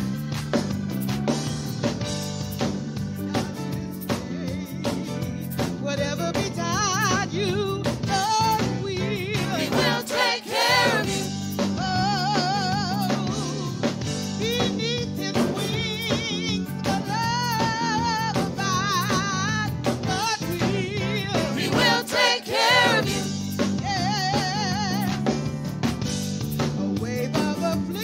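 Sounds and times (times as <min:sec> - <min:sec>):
band with drums: 0:00.0 - 0:28.0
woman singing gospel: 0:09.4 - 0:11.3, 0:21.5 - 0:23.3.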